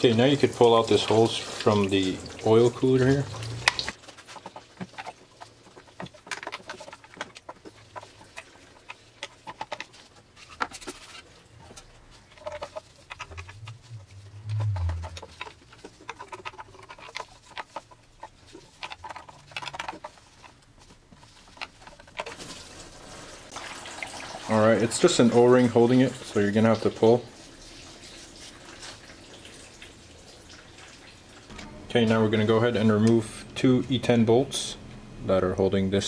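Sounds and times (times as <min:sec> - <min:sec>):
metal pipe clicking and creaking: 0:03.4 - 0:20.6.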